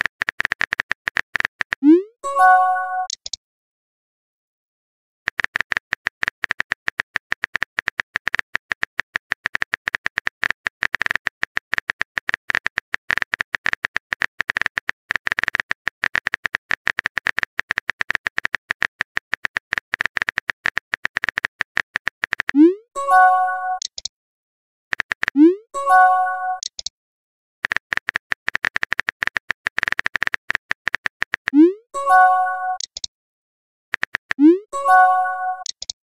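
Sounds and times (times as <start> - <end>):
phone keyboard typing clicks: 0.0 - 1.9, 3.0 - 3.4, 5.3 - 22.6, 23.6 - 24.1, 24.9 - 25.4, 26.0 - 26.9, 27.6 - 31.6, 32.2 - 33.1, 33.9 - 36.0.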